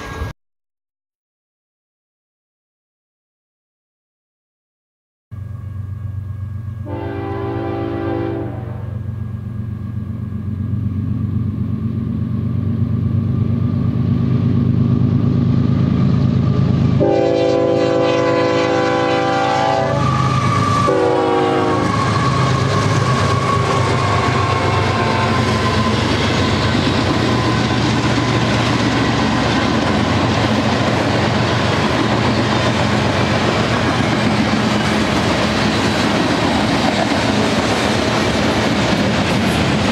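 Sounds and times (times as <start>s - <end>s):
diesel locomotives running: 0.0s - 0.3s, 5.3s - 39.9s
locomotive air horn blasts: 6.8s - 9.1s, 17.0s - 25.8s
train wheels clacking on rails: 20.0s - 39.9s.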